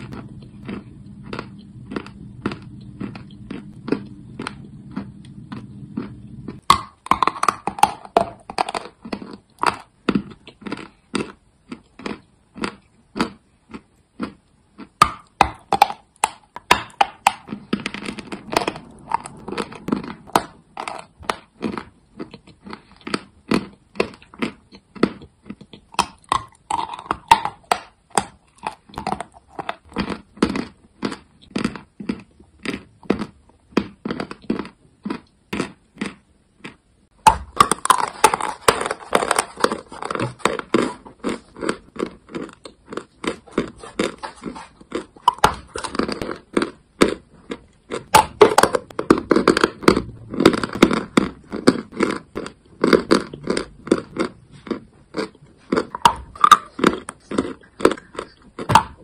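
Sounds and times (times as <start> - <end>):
chalk being chewed: 37.6 - 48.0, 50.3 - 59.0.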